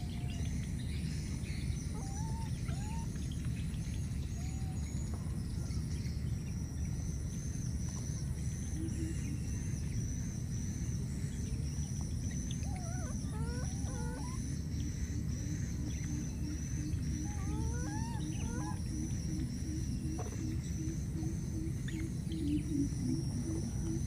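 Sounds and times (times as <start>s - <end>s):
gliding calls: 12.4s - 24.0s.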